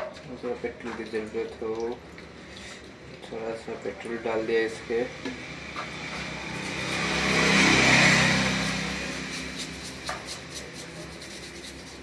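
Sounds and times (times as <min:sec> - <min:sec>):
vehicle engine passing by: 0:04.2 - 0:12.0.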